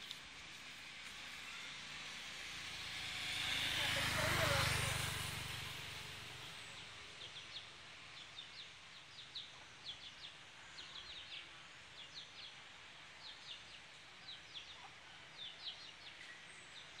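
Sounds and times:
small birds chirping: 0.0s - 17.0s
motorcycle passing: 0.4s - 7.7s.

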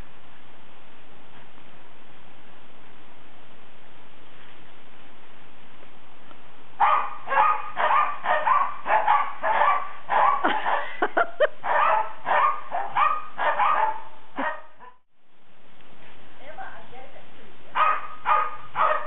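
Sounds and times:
dog yips: 6.8s - 10.6s, 11.7s - 15.0s, 17.8s - 19.0s
dogs barking: 6.8s - 15.0s, 17.8s - 19.0s.

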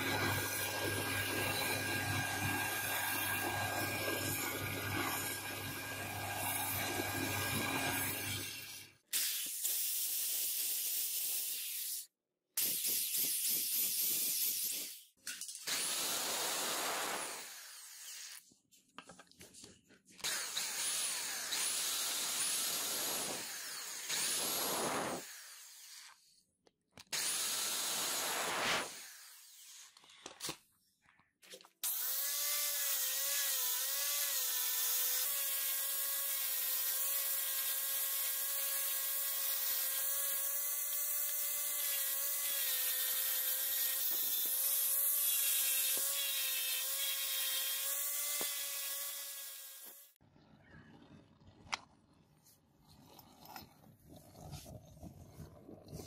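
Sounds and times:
electric drill boring wood: 0.0s - 8.8s, 15.7s - 18.4s, 20.2s - 26.3s, 27.2s - 29.9s, 31.8s - 50.2s
power tool running on wood: 31.9s - 50.2s.

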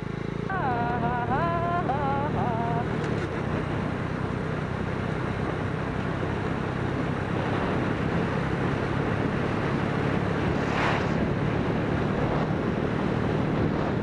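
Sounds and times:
motorcycle engine running: 0.0s - 14.0s
wind rush on microphone: 5.4s - 14.0s.

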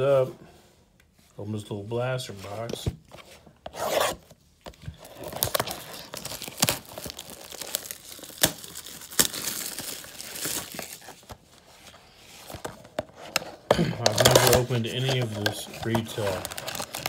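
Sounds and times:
plastic wrapping crinkling and tearing: 4.9s - 11.4s, 13.9s - 17.0s.

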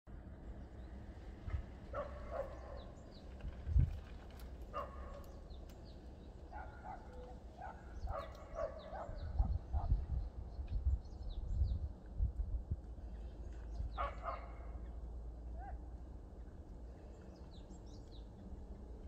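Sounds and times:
small birds chirping: 0.2s - 12.0s, 13.0s - 14.9s, 16.7s - 18.6s
distant dog barking: 1.9s - 3.0s, 4.7s - 5.4s, 6.5s - 10.0s, 14.0s - 14.8s.

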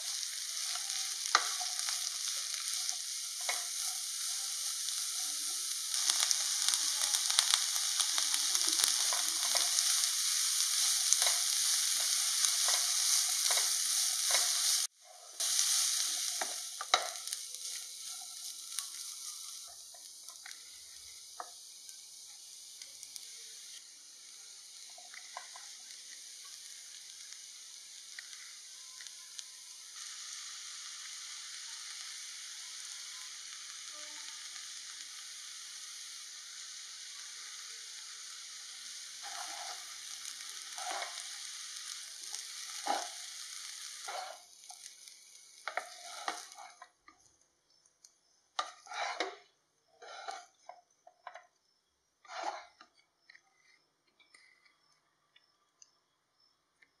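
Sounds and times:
rice sizzling in a pan: 0.0s - 53.6s, 54.2s - 57.0s
spatula scraping rice: 6.0s - 19.8s, 39.2s - 44.5s, 45.7s - 46.8s, 48.6s - 49.4s, 50.0s - 50.7s, 52.2s - 52.8s.

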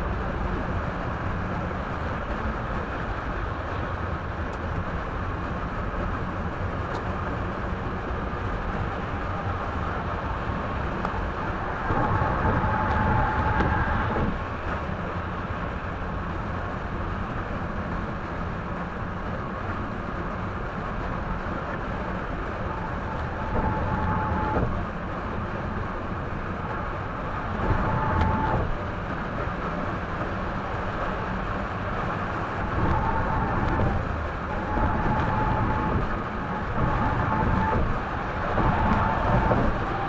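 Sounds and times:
car tyre and engine rumble: 0.0s - 40.0s.

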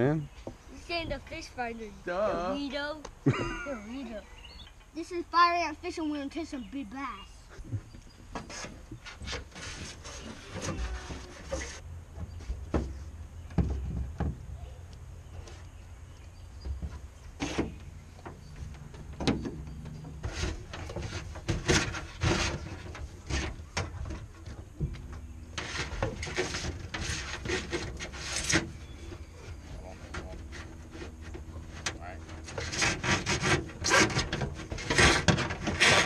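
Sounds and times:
wires rubbing and scraping: 7.4s - 12.7s, 16.6s - 36.0s.

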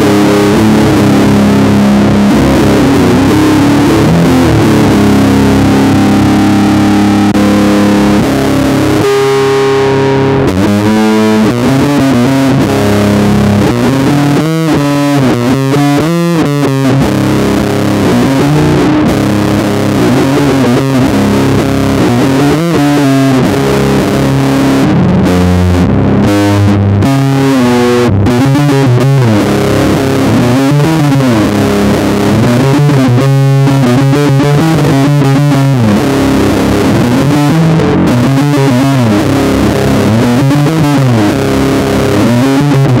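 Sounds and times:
distorted electric bass riff: 0.0s - 43.0s.

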